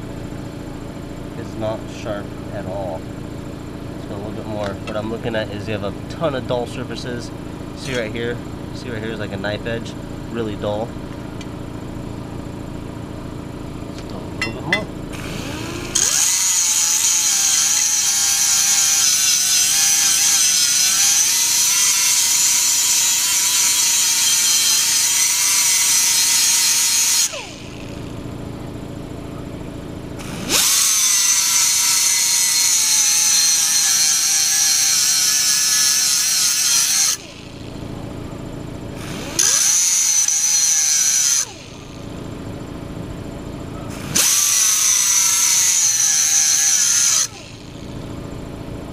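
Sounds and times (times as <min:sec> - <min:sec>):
electric grinder on metal blade: 0:15.2 - 0:28.1, 0:30.2 - 0:37.6, 0:39.0 - 0:42.0, 0:44.0 - 0:47.8.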